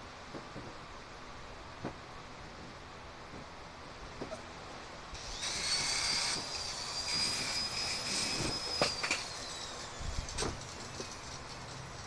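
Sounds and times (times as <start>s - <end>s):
rough grinding noise: 5.1s - 12.0s
angle grinder whining: 5.2s - 12.0s.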